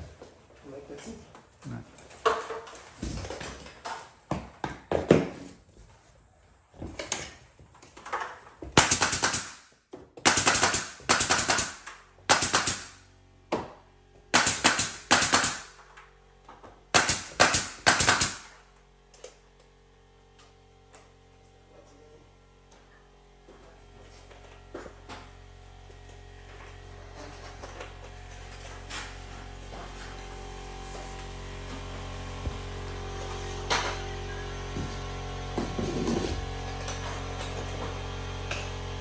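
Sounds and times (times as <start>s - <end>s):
nail gun shooting: 8.8s - 13.0s, 14.3s - 15.8s, 16.9s - 18.6s.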